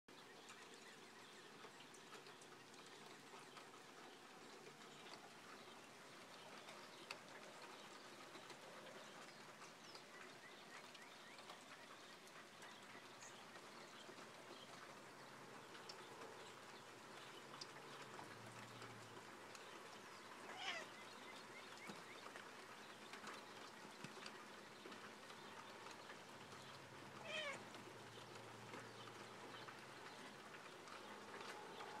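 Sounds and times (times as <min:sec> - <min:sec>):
light ticks: 0:00.4 - 0:32.0
cat meowing: 0:20.5 - 0:20.9, 0:27.2 - 0:27.6.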